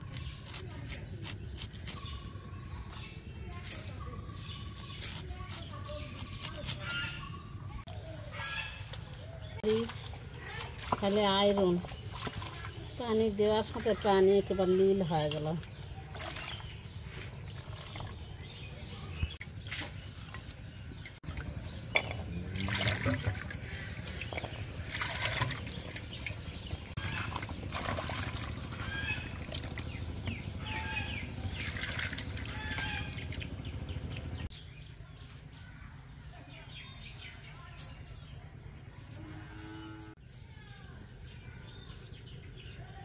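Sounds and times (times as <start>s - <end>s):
water splashing and trickling: 8.8s - 34.5s
steady low hum: 15.6s - 36.2s.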